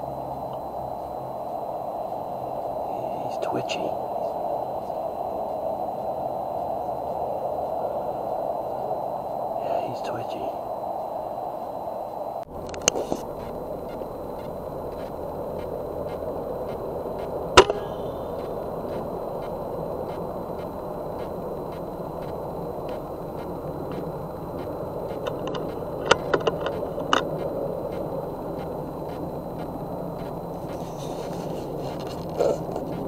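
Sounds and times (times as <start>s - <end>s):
quick clicks: 12.7s - 33.0s
air rifle shot: 17.6s - 18.4s.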